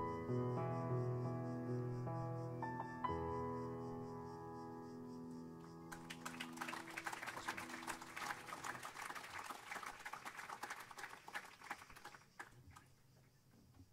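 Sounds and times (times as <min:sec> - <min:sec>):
piano chord: 0:00.0 - 0:06.6
audience applauding: 0:05.9 - 0:12.9.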